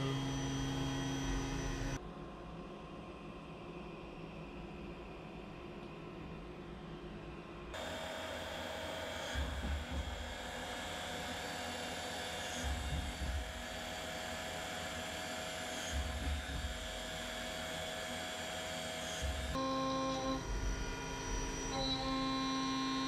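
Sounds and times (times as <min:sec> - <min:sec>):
machine spindle whining: 0:00.0 - 0:02.0, 0:07.8 - 0:23.0.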